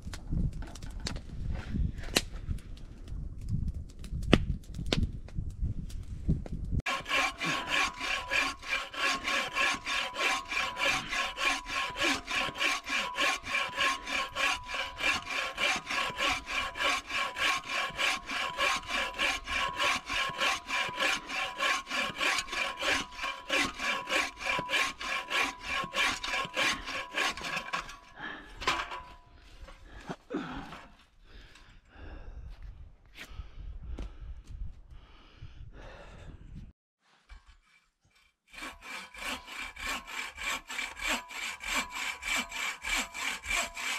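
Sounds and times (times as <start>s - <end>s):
hand saw cutting a log: 6.9s - 29.2s, 37.2s - 43.9s.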